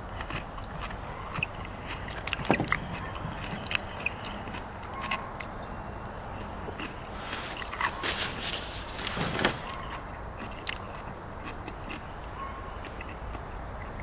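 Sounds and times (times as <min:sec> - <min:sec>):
person chewing crunchy food: 0:00.0 - 0:05.6, 0:06.4 - 0:09.0, 0:09.6 - 0:14.0.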